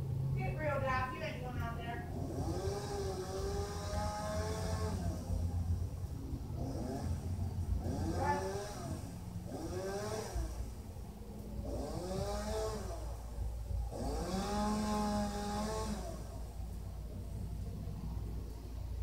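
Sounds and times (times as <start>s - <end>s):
chainsaw revving: 2.0s - 17.8s.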